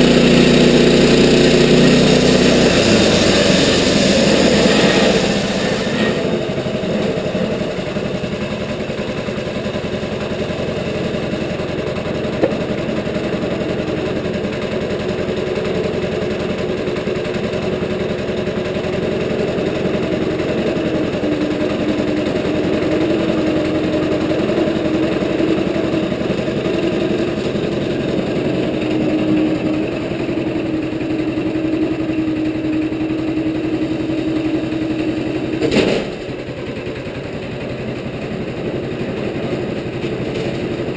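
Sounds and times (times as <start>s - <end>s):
sawmill engine running: 0.0s - 40.9s
sharp knock: 12.4s - 12.6s.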